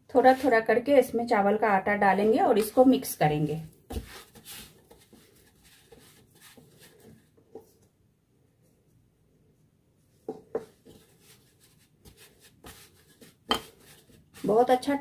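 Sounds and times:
hands kneading dough in bowl: 0:02.1 - 0:07.9, 0:10.4 - 0:15.0.

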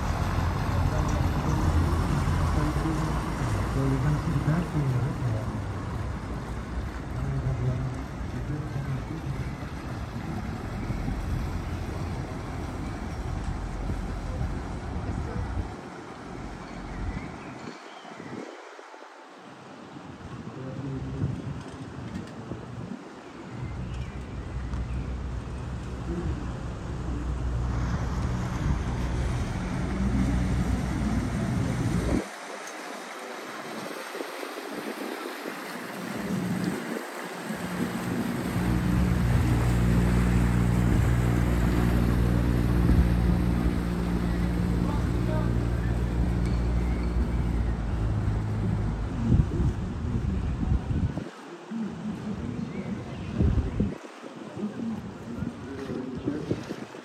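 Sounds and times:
boat motor running: 0:00.0 - 0:17.3, 0:23.7 - 0:33.9, 0:34.5 - 0:51.1
faint voices: 0:00.0 - 0:17.4, 0:25.2 - 0:57.0
wind rumbling on microphone: 0:00.0 - 0:57.0.

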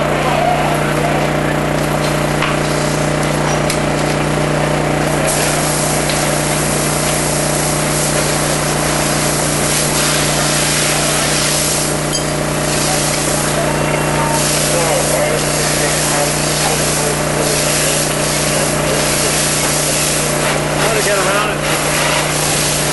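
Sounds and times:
engine running: 0:00.0 - 0:22.9
fire hose spraying water: 0:00.9 - 0:22.9.

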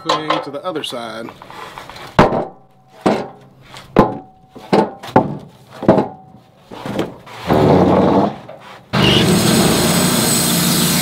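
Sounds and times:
boards sliding and scraping: 0:01.2 - 0:09.4
wooden boards knocking on steel: 0:02.2 - 0:08.4.

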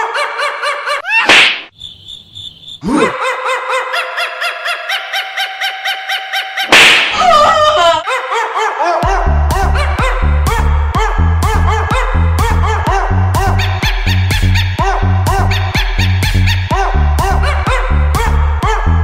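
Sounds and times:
cartoon slap impacts: 0:01.2 - 0:01.8, 0:06.7 - 0:07.4
music with a beat: 0:09.0 - 0:19.0.

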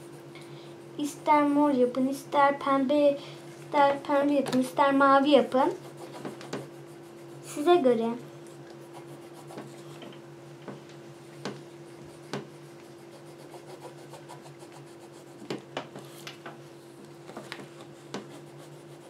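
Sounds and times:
pencil scratching on paper: 0:00.0 - 0:01.3, 0:05.6 - 0:07.8, 0:08.5 - 0:10.0, 0:11.3 - 0:16.2, 0:17.2 - 0:19.0
faint steady hum: 0:00.0 - 0:19.0
pencil taps on paper: 0:12.3 - 0:12.5.

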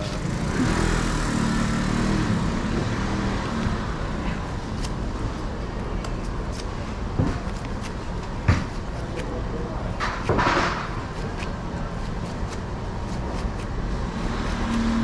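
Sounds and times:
vehicle engine passing: 0:00.0 - 0:04.4
street background noise: 0:00.0 - 0:15.0.

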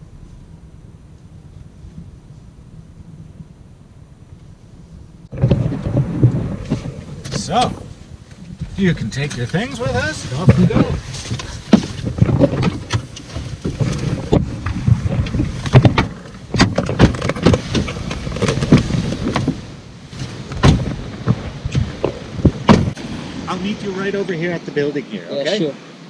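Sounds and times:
knocks and bumps: 0:05.2 - 0:23.0.

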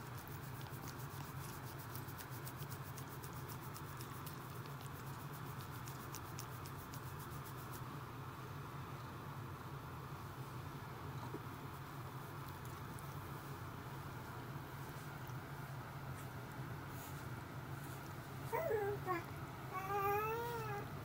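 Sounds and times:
cat purring: 0:00.5 - 0:07.8.

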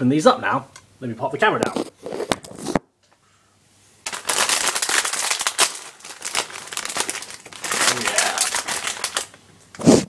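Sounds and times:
crisp packet crinkling: 0:04.0 - 0:09.4.

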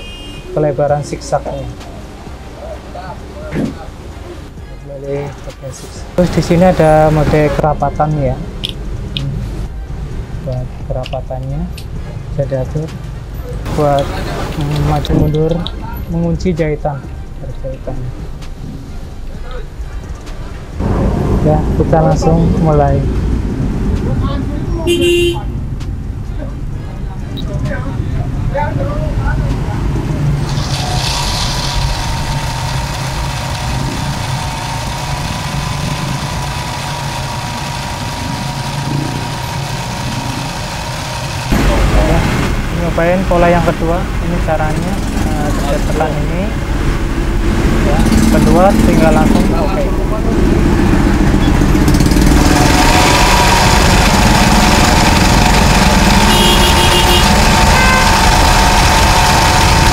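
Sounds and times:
sewing machine running: 0:30.4 - 0:41.5, 0:51.7 - 0:59.9.

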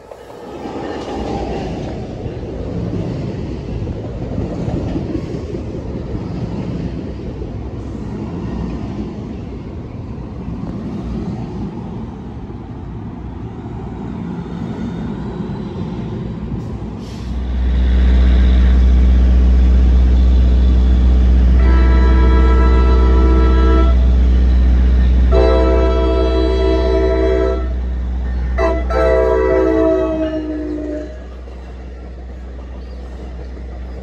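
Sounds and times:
train wheels rumbling on rail: 0:00.0 - 0:34.0.

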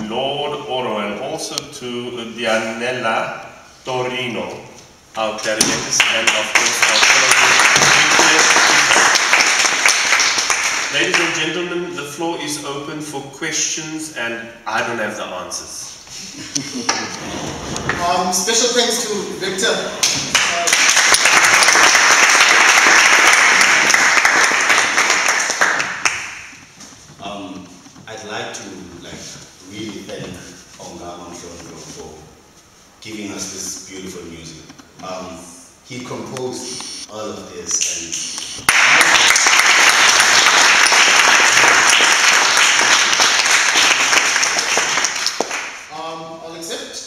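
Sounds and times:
audience applause: 0:05.9 - 0:11.4, 0:20.0 - 0:26.5, 0:38.6 - 0:45.9.

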